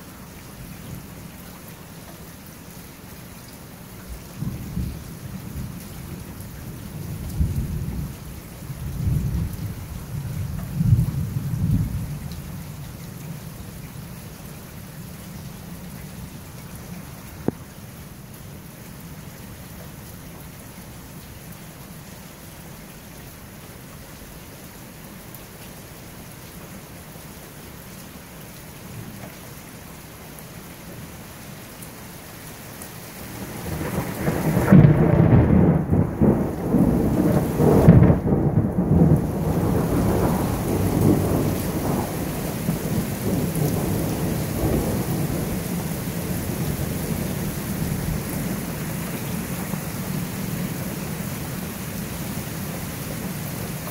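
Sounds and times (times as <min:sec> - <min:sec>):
steady rain hiss: 0:00.0 - 0:53.9
thunder cracking and rumbling: 0:33.6 - 0:45.6.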